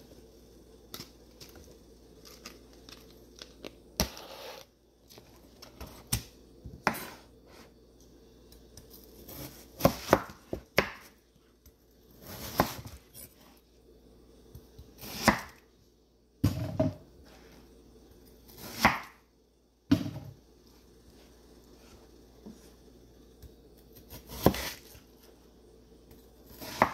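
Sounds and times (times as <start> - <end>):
knife cutting watermelon on board: 9.2 - 11.2, 12.2 - 13.0, 15.0 - 15.6, 24.0 - 25.0, 26.5 - 26.9.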